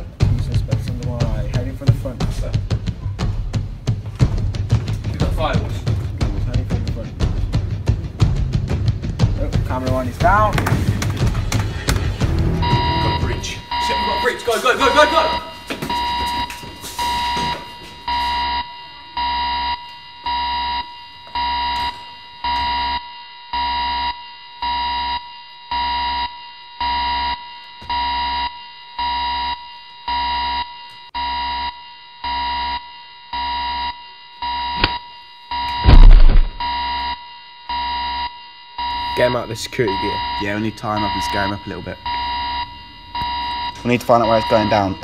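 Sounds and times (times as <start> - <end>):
steady alarm tone: 11.8 - 45.0
alarm pulsed beeps: 12.2 - 45.0
loud thump: 35.8 - 36.7.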